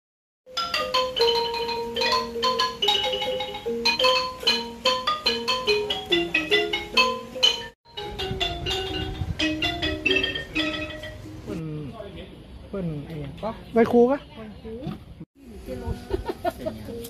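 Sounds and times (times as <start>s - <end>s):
xylophone melody: 0.5s - 11.6s.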